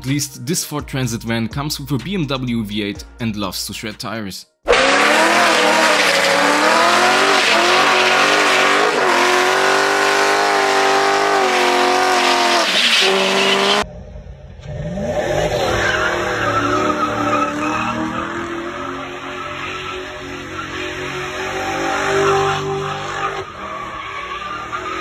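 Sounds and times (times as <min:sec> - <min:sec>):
tyres squealing: 0:04.7 - 0:13.8
engine revving: 0:04.7 - 0:13.9, 0:14.5 - 0:23.5.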